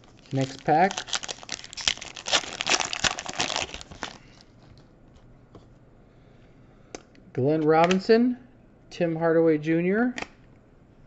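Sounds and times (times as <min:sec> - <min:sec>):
foil wrapper tearing and crinkling: 0:00.0 - 0:04.4.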